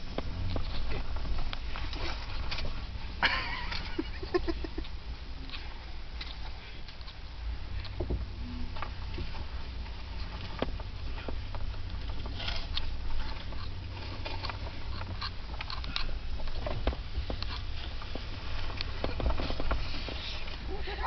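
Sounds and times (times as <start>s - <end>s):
vehicle rumble from inside: 0.0s - 21.0s
small clicks and crackles: 8.7s - 21.0s.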